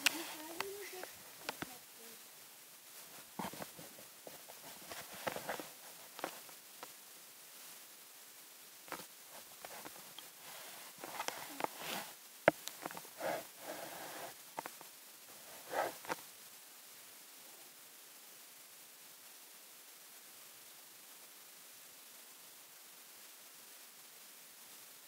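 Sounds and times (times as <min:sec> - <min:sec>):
camera rubbing against fur: 0:00.0 - 0:01.8, 0:03.1 - 0:06.5, 0:08.9 - 0:12.2, 0:12.8 - 0:14.7, 0:15.4 - 0:16.2.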